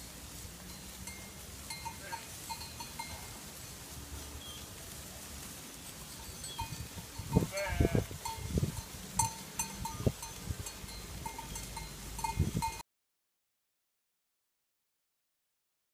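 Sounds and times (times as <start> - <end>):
small bells clinking: 0.5 - 3.8, 5.9 - 12.8
sheep bleating: 1.8 - 2.3, 7.4 - 8.2.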